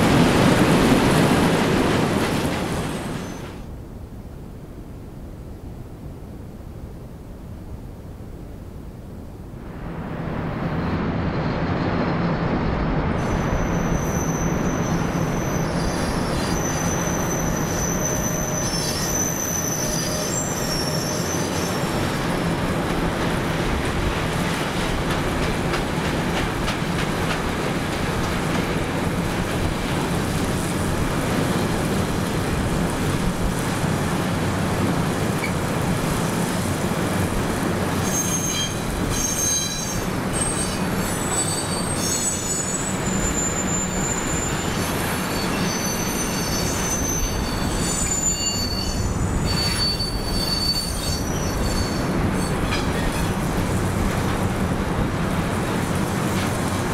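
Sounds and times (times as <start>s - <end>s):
train wagons rumbling on rails: 0.0s - 4.2s, 9.5s - 56.9s
train wheels squealing: 2.9s - 3.6s, 13.2s - 22.4s, 35.4s - 35.6s, 37.9s - 53.4s.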